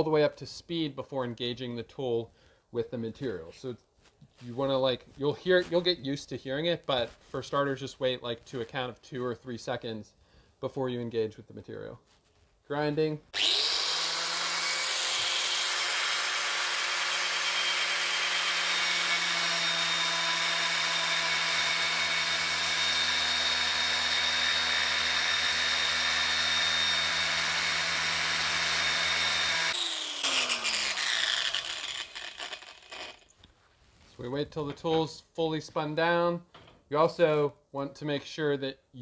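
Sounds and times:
angle grinder whining: 13.4s - 33.3s
grinder disc cutting metal: 13.4s - 33.4s.

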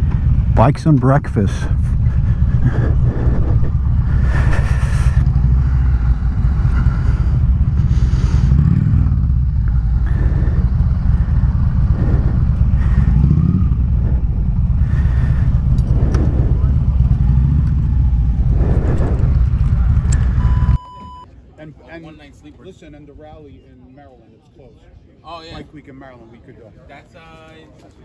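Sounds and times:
motorcycle engine idling: 0.0s - 20.8s.

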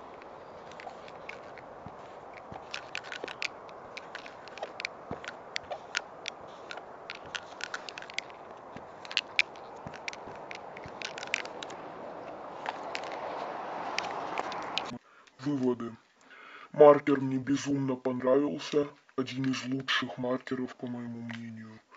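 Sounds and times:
marker clicking and scraping: 0.0s - 15.0s
steady hiss: 0.0s - 15.3s.

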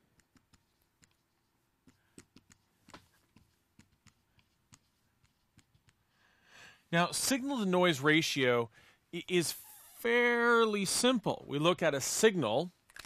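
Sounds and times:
marker writing on whiteboard: 0.0s - 6.1s.

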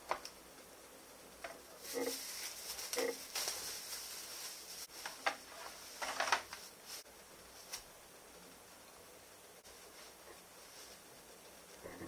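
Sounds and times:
plastic bag crinkling: 1.8s - 7.0s.

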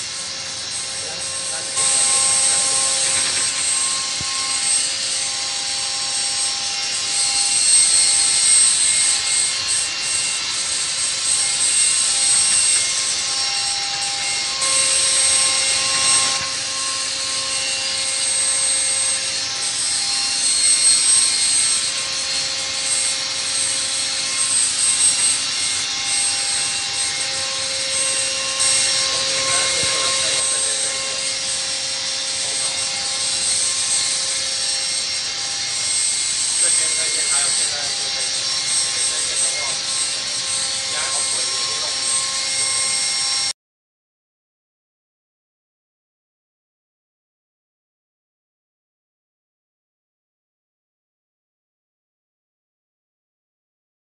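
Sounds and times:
milling machine cutting whine: 0.0s - 43.5s.

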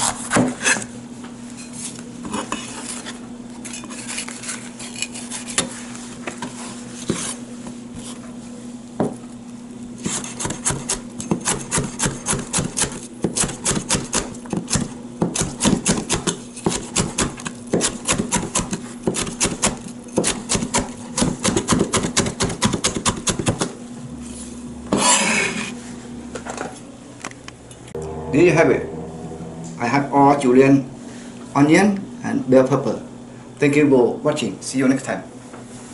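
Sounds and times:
blade scraping cutting board: 7.0s - 7.4s, 10.0s - 12.9s, 24.3s - 25.8s.

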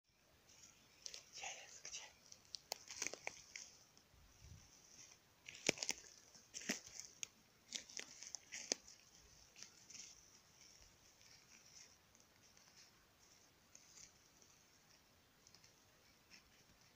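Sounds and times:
twigs cracking: 2.3s - 4.1s, 4.9s - 12.9s
footsteps on dry leaves: 4.5s - 10.3s.

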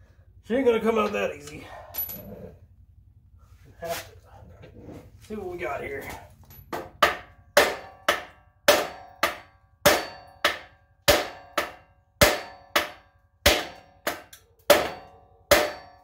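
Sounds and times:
hammer striking metal: 6.7s - 16.0s.

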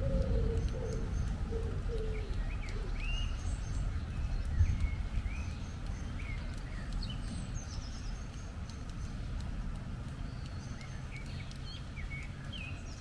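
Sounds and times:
pigeon cooing: 0.0s - 2.9s
bird chirping calls: 0.0s - 9.4s, 10.0s - 13.0s
pouring rain: 0.0s - 13.0s
wind rumble: 0.0s - 13.0s.

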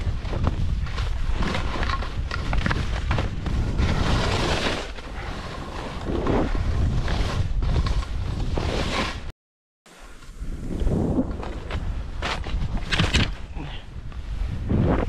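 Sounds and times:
skis swishing through snow: 0.0s - 9.3s
wind buffeting microphone: 10.4s - 15.0s.

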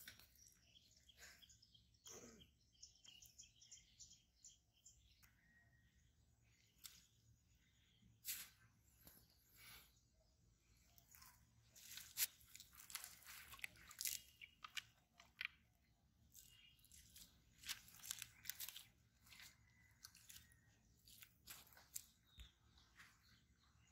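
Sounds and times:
footsteps crunching through dry grass: 11.7s - 14.2s, 16.9s - 23.3s.

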